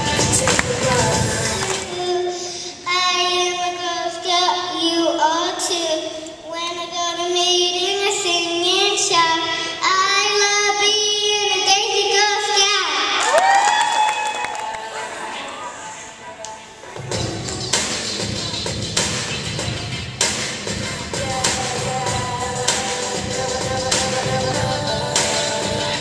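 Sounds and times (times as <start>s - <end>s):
girl singing into microphone: 0.0s - 13.2s, 21.2s - 26.0s.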